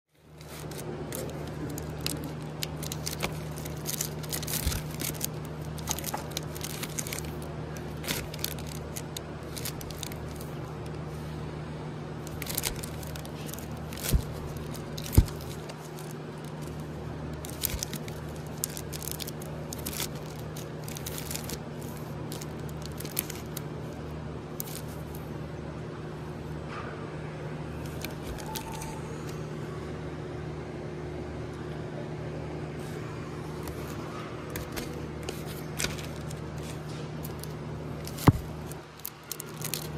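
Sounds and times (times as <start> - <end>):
record sleeves scraping and crinkling: 0.1 - 11.4, 12.2 - 25.3, 27.8 - 29.4, 32.8 - 39.9
steady low hum: 0.1 - 39.9.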